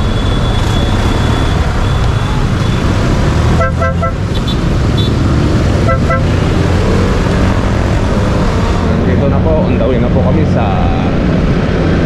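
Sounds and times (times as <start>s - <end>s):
motorcycle engine: 0.0s - 10.2s
traffic noise: 0.0s - 12.0s
vehicle horn beeping: 3.6s - 5.2s, 5.8s - 6.4s.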